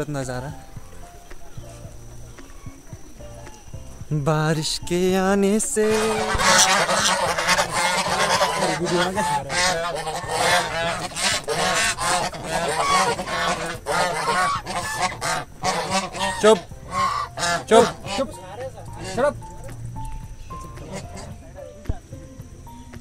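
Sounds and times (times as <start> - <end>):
geese honking: 5.8 - 19.7, 20.5 - 21.7.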